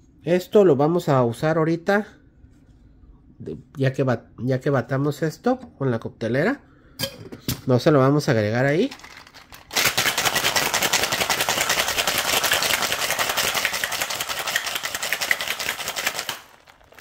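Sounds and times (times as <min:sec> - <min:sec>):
ice rattling in cocktail shaker: 0:08.8 - 0:17.0.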